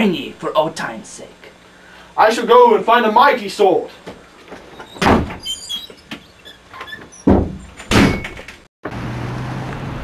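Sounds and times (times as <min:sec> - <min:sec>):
door squeaks and clicks: 0:04.6 - 0:08.6
door heavy thuds: 0:04.8 - 0:05.6, 0:07.0 - 0:08.6
road noise with low hum: 0:08.4 - 0:10.0.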